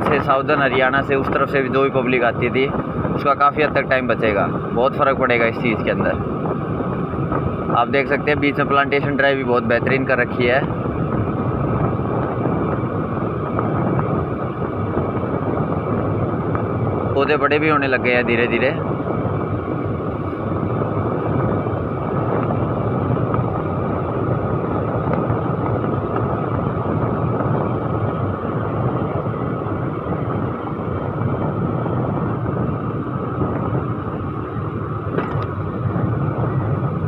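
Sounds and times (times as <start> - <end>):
wind rushing: 0.0 - 37.0
tyre noise on asphalt: 18.7 - 37.0.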